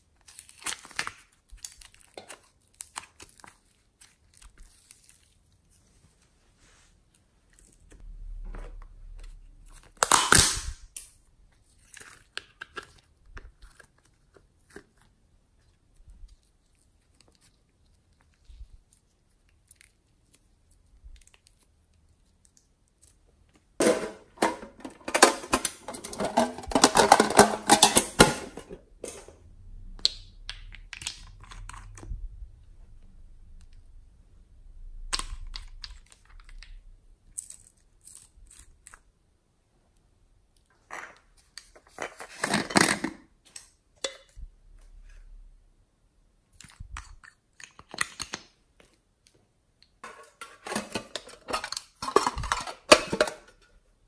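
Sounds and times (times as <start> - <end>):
slime squishing and crackling: 0.0 - 5.8, 9.3 - 23.8, 30.0 - 32.8.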